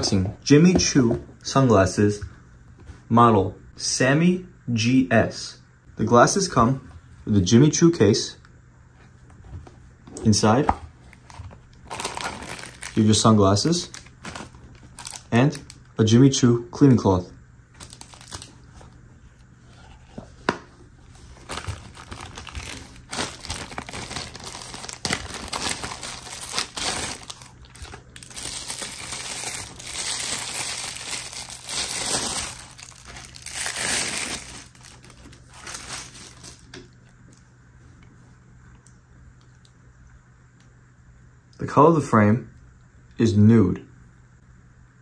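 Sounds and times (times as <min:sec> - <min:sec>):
plastic wrapping crinkling: 0:11.7 - 0:13.2, 0:13.8 - 0:15.9, 0:17.8 - 0:18.8, 0:21.2 - 0:37.2.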